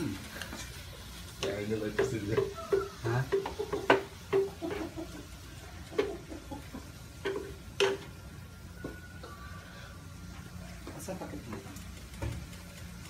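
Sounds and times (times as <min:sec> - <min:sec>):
spatula stirring food in a pan: 0:00.0 - 0:13.0
spatula knocking against a pan: 0:01.9 - 0:05.0.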